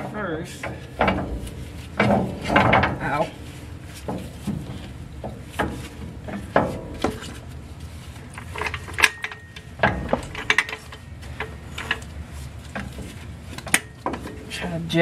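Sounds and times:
metal clanks and knocks: 0.0s - 7.6s, 8.2s - 14.6s.

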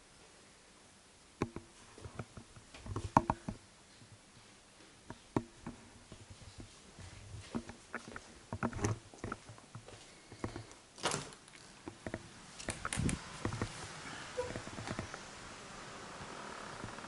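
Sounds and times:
footsteps and knocks: 1.4s - 10.7s
glass door sliding open: 12.4s - 17.0s.

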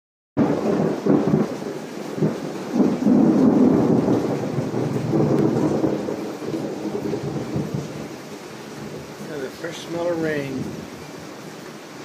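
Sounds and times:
thunder rumbling: 0.4s - 11.3s
rain: 0.4s - 12.0s.

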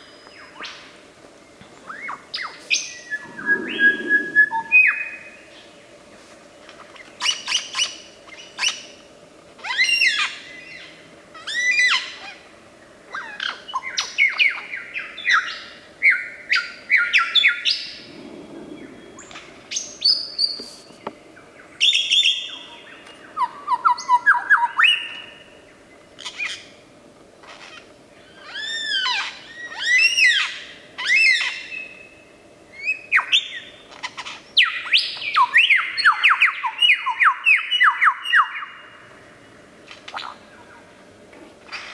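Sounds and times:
lyrebird singing: 1.9s - 5.6s.

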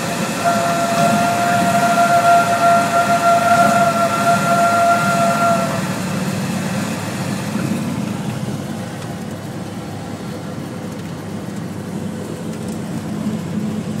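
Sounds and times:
aircraft engine and propeller drone: 0.0s - 0.5s, 5.8s - 14.0s.

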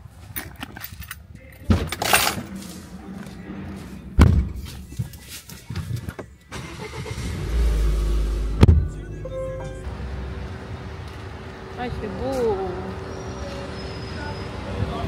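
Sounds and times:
car doors shutting: 6.5s - 9.9s
car engine starting and running: 6.5s - 11.9s.

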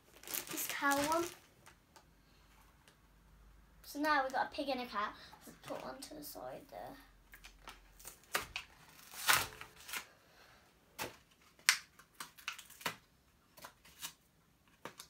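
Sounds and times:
packaging crinkling: 0.0s - 1.8s, 11.4s - 13.0s.

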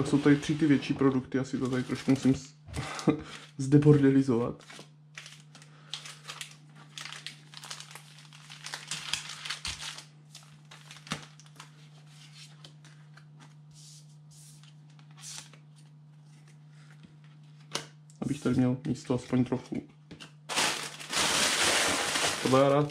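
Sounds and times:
cards and plastic packaging rustling: 1.5s - 2.4s, 4.6s - 13.7s, 20.2s - 22.9s.

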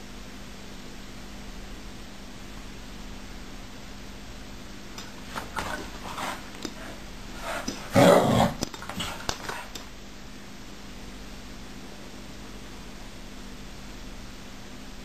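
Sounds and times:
dog growling: 5.2s - 9.8s.

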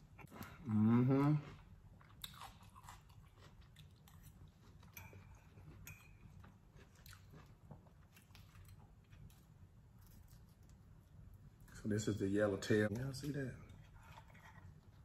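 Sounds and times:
person chewing: 0.0s - 11.4s.

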